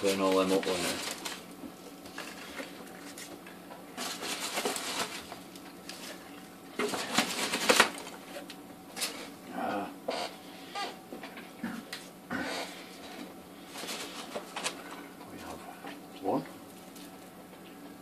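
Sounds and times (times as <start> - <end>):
packing peanuts rustling: 0.0 - 3.4, 4.0 - 6.2, 6.8 - 9.2.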